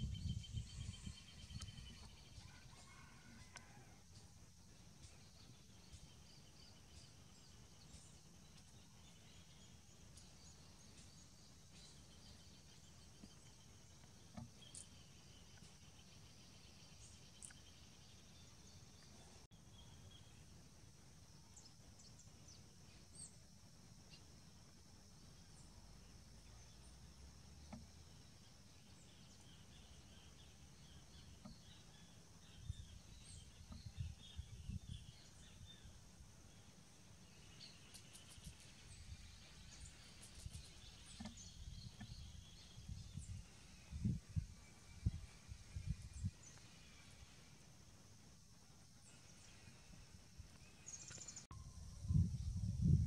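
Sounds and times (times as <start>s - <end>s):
bird chirps: 0.0s - 3.2s, 5.0s - 20.3s.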